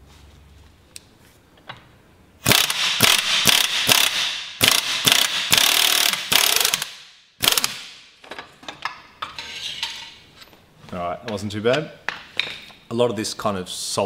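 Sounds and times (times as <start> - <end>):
impact wrench hammering: 2.4 - 8.0.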